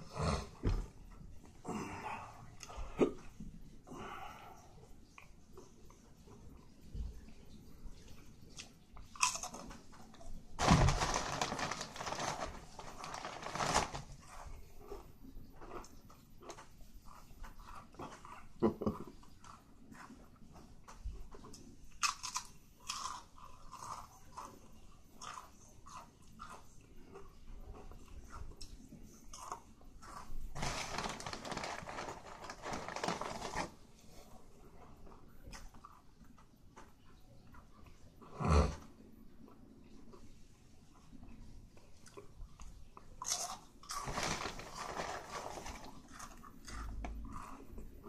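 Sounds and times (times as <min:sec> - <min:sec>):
plastic bag crinkling: 0:10.6 - 0:14.4, 0:30.5 - 0:33.8, 0:43.3 - 0:46.4.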